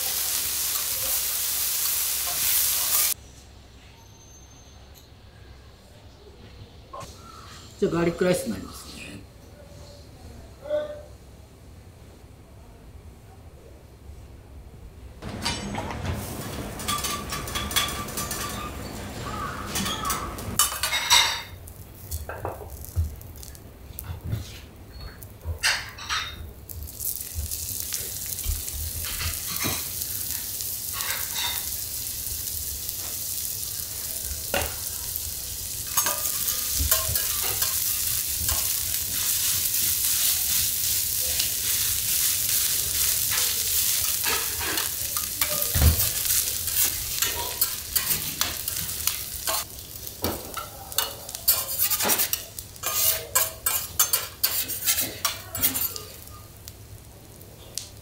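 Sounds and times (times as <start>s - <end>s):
rice sizzling on a griddle: 0.0s - 3.2s, 15.2s - 58.0s
spatulas scraping and clicking on metal: 15.2s - 22.4s, 31.0s - 31.8s, 35.9s - 49.7s, 50.5s - 56.3s.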